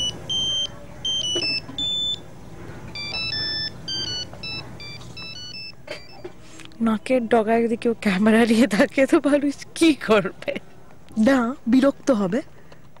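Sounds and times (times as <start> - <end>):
phone ringtone beeping melody: 0.0 - 2.2, 3.0 - 6.3.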